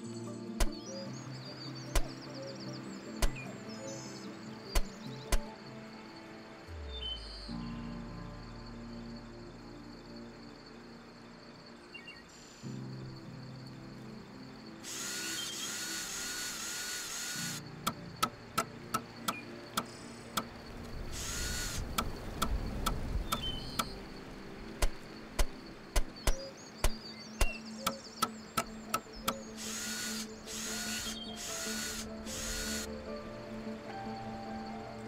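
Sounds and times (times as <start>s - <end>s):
cordless drill boring into log: 14.8s - 17.6s, 21.2s - 21.9s, 29.5s - 32.9s.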